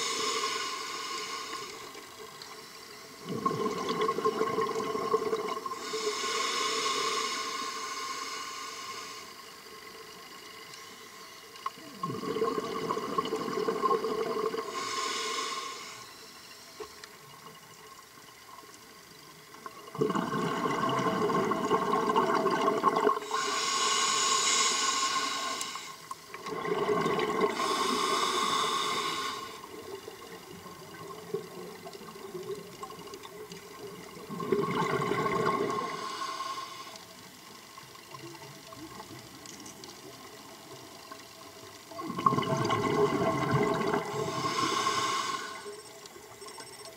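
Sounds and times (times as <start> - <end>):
diver breathing through regulator: 0.0 - 2.0, 5.8 - 9.4, 14.5 - 16.4, 23.2 - 29.7, 35.3 - 37.1, 44.0 - 45.7
steady faint hiss: 0.0 - 3.3, 4.7 - 34.5, 35.1 - 46.9
exhaled bubbles rushing: 3.2 - 5.8, 12.0 - 14.7, 19.8 - 23.3, 26.4 - 27.7, 33.9 - 35.8, 41.9 - 44.4.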